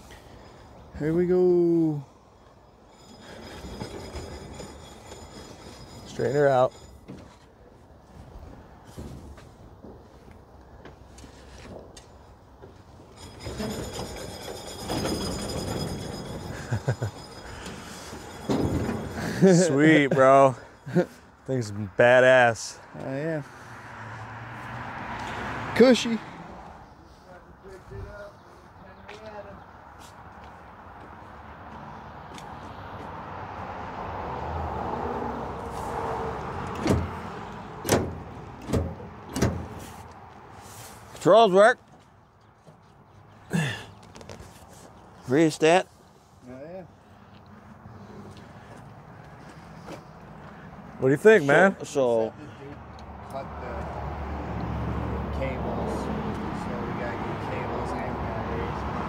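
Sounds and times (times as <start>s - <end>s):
vehicle scraping and rubbing: 2.2s - 21.8s, 35.5s - 41.3s, 44.0s - 46.4s.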